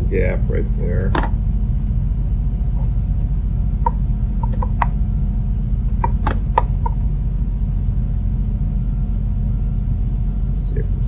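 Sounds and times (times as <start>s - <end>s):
steady low hum: 0.0s - 11.0s
plastic light bulb clicks and taps: 3.8s - 5.0s, 5.9s - 7.0s.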